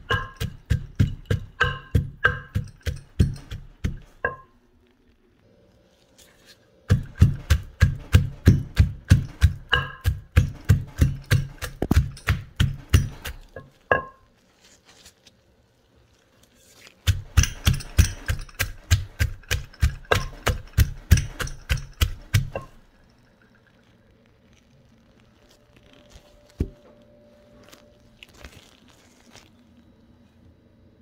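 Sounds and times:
pestle pounding in a mortar: 0.0 - 4.4, 6.9 - 14.2, 17.0 - 22.9.

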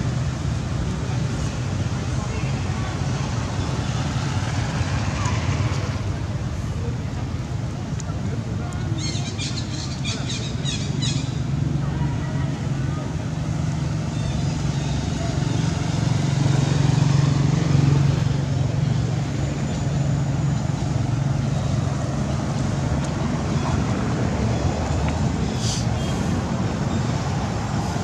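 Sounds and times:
outdoor background noise: 0.0 - 28.0
low engine hum: 9.6 - 28.0.

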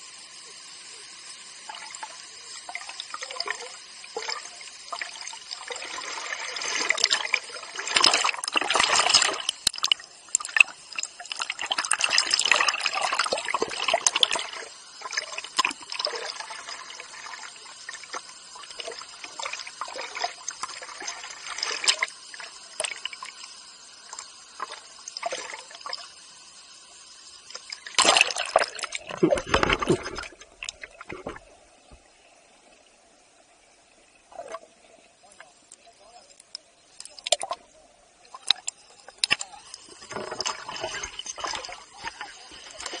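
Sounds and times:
water dripping: 1.7 - 26.2, 27.4 - 32.1, 33.9 - 43.0
water splashing against camera: 27.5 - 31.6, 34.3 - 43.0.

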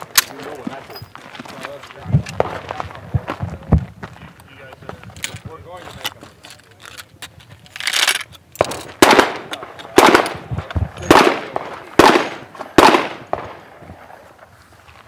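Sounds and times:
rifle shots with echo: 8.6 - 14.2.

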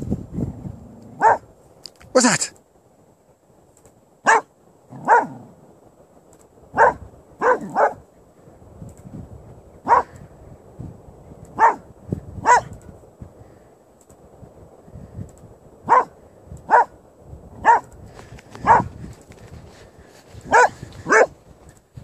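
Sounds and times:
dog barking: 1.2 - 1.5, 4.2 - 5.5, 6.7 - 8.0, 9.8 - 10.2, 11.6 - 12.7, 15.9 - 17.0, 17.6 - 17.9, 18.6 - 18.9, 20.5 - 21.3.

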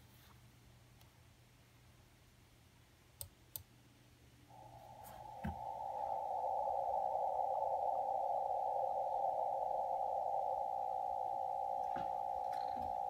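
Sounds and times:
radio receiver hiss: 4.5 - 13.0.

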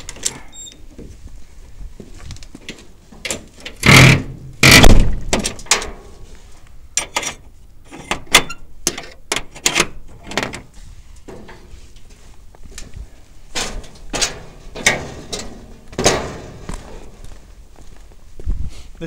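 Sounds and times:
footsteps crunching over debris: 1.0 - 3.6, 10.7 - 19.0
loud thuds: 3.8 - 5.7, 13.5 - 16.9.

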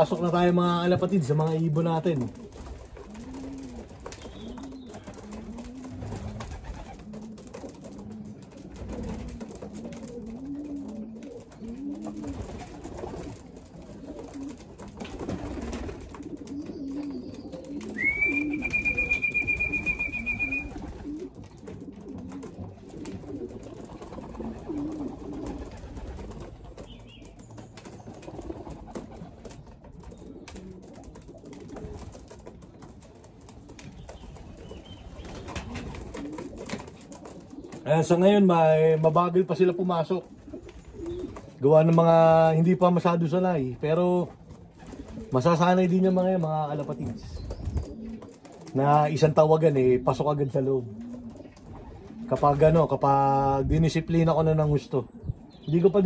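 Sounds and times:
pigeons cooing: 0.0 - 56.0
high whistle: 18.0 - 20.7.

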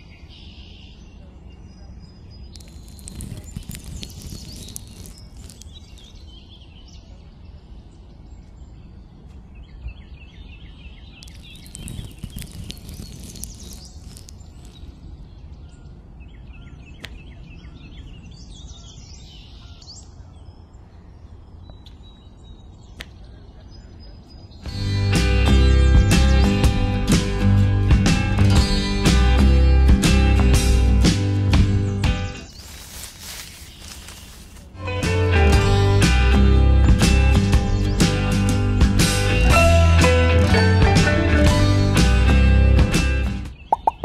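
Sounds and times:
birds chirping: 0.0 - 27.4, 28.3 - 34.8, 43.5 - 44.0.

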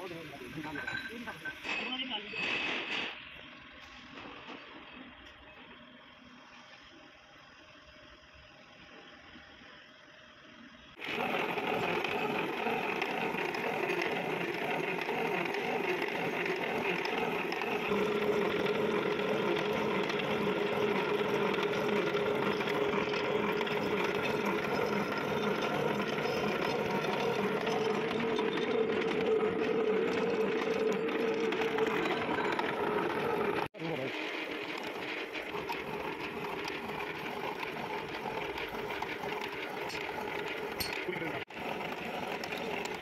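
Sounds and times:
milling cutter machining metal: 11.0 - 43.0.

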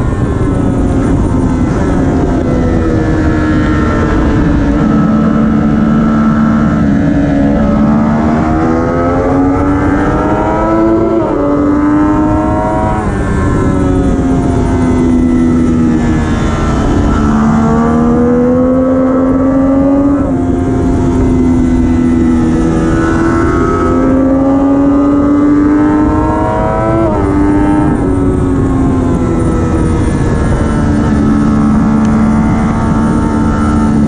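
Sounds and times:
motorcycle engine at racing speed: 0.0 - 34.0
wind rushing: 0.0 - 34.0.

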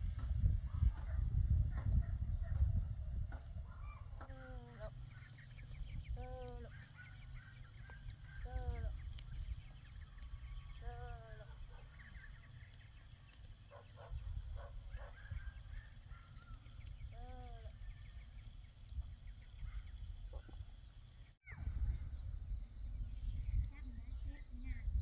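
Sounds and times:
farm animals calling: 3.8 - 18.8.

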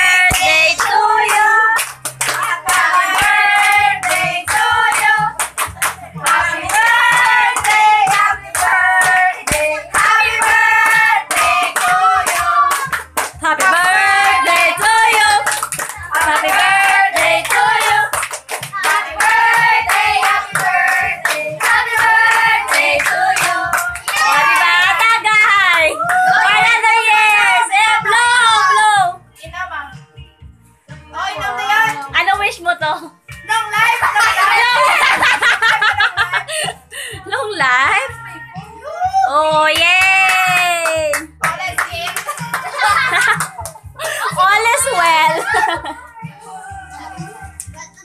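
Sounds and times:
group singing: 0.0 - 5.5, 6.2 - 29.0
people clapping along: 0.0 - 28.2, 39.7 - 45.8, 47.5 - 47.8.

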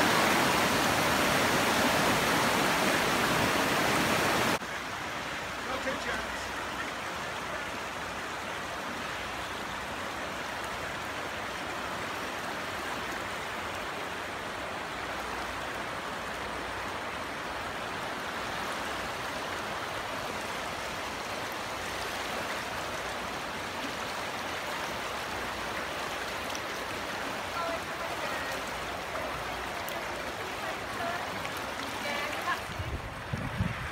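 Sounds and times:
flooded river rushing: 0.0 - 33.9.

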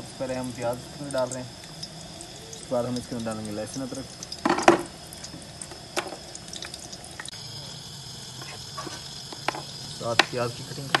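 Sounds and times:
faint steady hiss: 0.0 - 11.0
oil popping and ticking: 0.0 - 11.0
onions frying in oil: 0.0 - 11.0.

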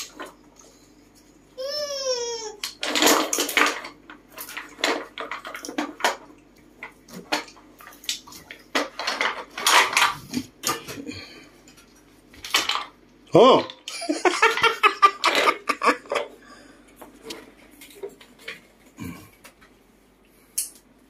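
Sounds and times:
wooden blocks clacking: 2.6 - 11.0, 12.4 - 16.4.

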